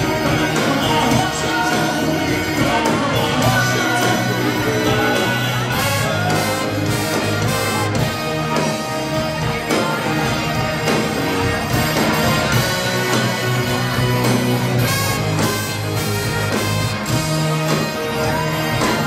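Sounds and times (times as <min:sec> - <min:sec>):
live rock band with horns: 0:00.0 - 0:19.0.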